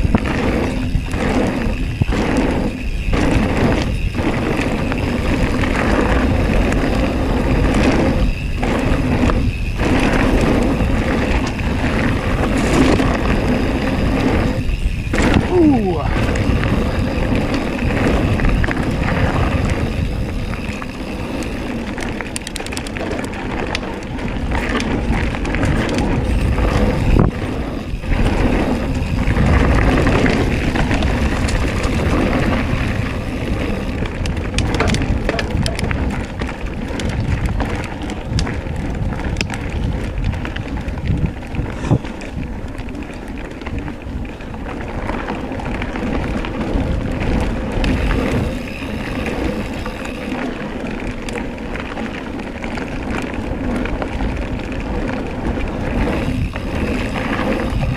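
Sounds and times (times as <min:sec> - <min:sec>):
bike clicking and rattling: 0:00.0 - 0:57.9
bike tyres rolling over dirt and stones: 0:00.0 - 0:57.9
wind on microphone: 0:00.0 - 0:57.9.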